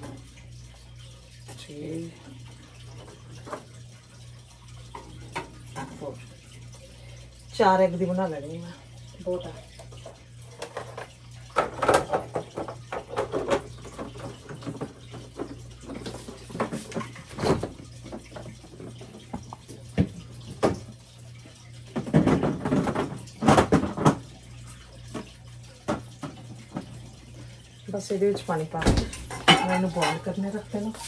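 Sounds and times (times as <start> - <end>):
tap water running: 0.0 - 31.0
eggs and cookware clinking: 28.3 - 31.0.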